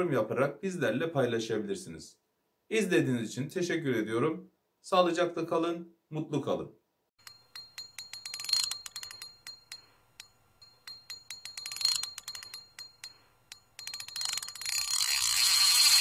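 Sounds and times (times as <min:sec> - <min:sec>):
bell-like ring: 0:07.2 - 0:16.0
sharp ticking clicks: 0:07.2 - 0:16.0.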